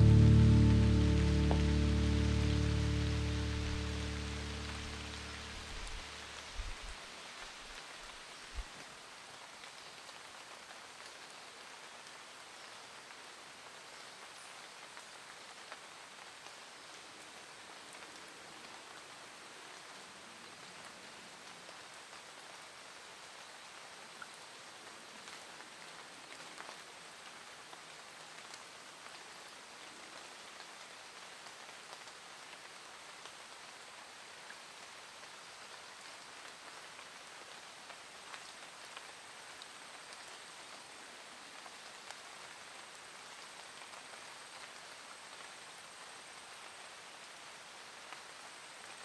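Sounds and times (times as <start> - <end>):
faint rain on leaves: 0.0 - 49.0.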